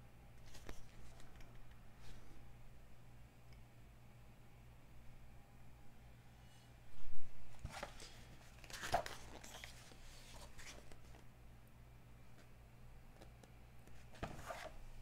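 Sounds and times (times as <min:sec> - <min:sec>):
faint steady hum: 0:00.0 - 0:15.0
magazine pages turning: 0:00.5 - 0:01.4, 0:07.6 - 0:11.2, 0:14.2 - 0:14.8.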